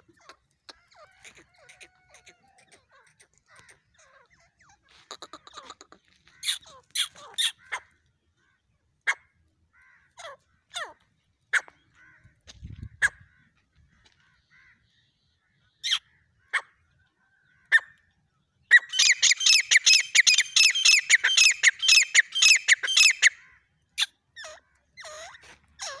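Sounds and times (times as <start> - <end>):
francolin calling: 18.7 - 23.4.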